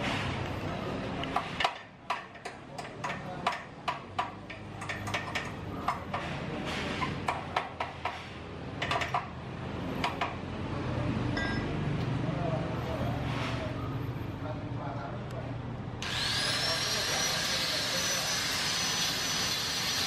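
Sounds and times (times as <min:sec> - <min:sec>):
hammer tapping on metal: 0:01.3 - 0:06.3, 0:07.2 - 0:09.3, 0:10.0 - 0:10.4.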